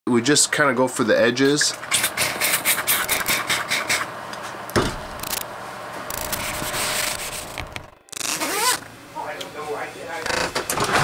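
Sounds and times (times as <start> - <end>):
thump: 4.8 - 5.1
rubbing on camera lens: 6.1 - 7.6.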